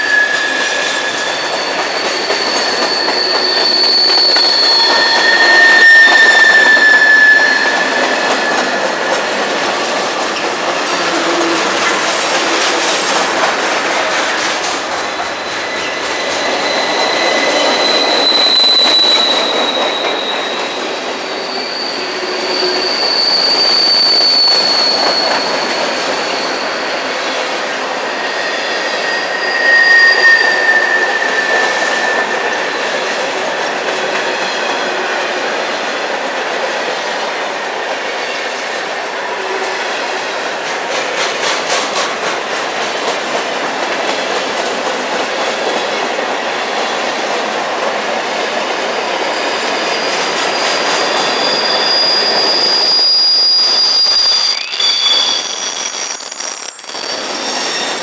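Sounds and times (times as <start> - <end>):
high-pitched wheel squeals: 0.0 - 9.6, 15.3 - 34.8, 48.8 - 58.0
steel wheels rumbling on rail: 0.0 - 58.0.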